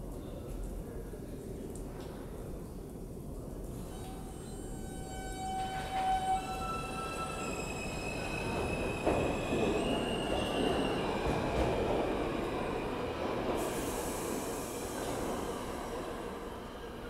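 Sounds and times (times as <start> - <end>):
rumble of train cars: 3.4 - 17.0
train wheels squealing: 3.9 - 11.7.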